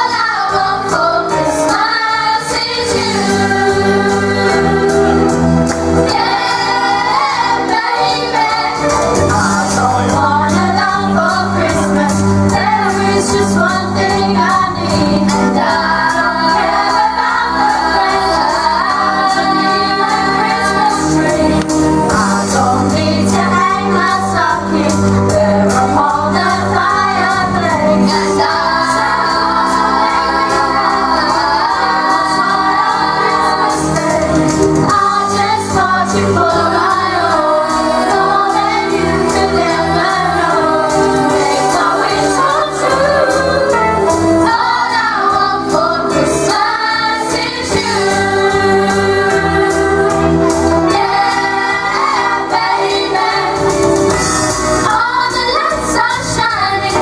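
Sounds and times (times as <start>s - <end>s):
choir singing: 0.0s - 57.0s
keyboard accompaniment: 0.0s - 57.0s.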